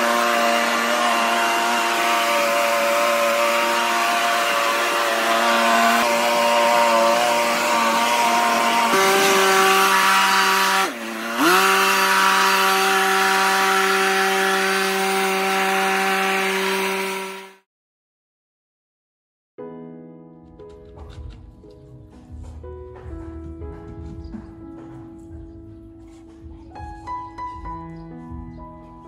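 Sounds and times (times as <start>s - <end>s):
leaf blower running: 0.0s - 17.6s.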